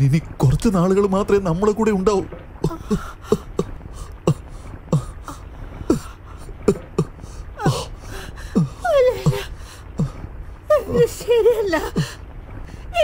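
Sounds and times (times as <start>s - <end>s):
woman sobbing: 2.6s - 12.2s.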